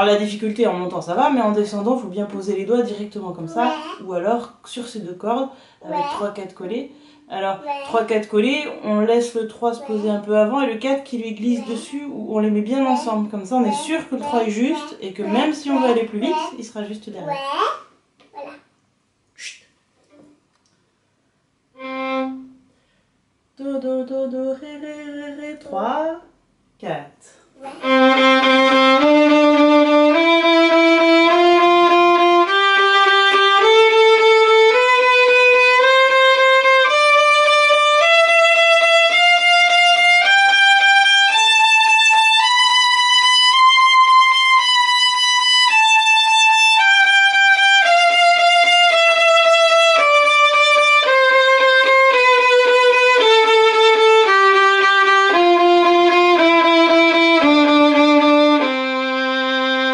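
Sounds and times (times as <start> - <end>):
violin playing a slow scale: 21.8 - 22.7, 27.7 - 59.9.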